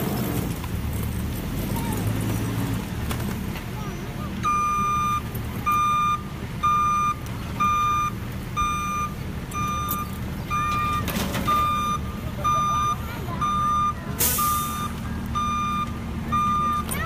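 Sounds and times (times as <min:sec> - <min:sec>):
low engine rumble: 0:00.0 - 0:17.0
backup alarm beeping: 0:04.4 - 0:17.0.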